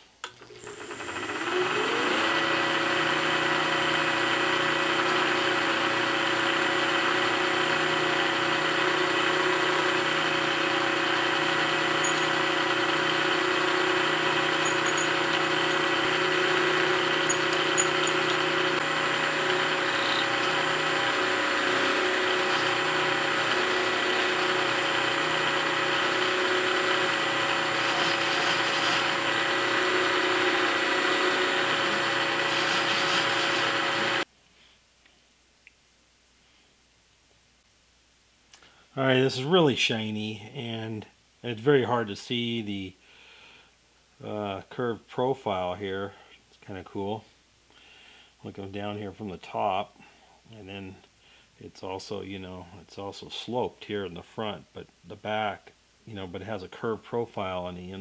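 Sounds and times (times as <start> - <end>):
milling machine cutting metal: 0.3 - 34.2.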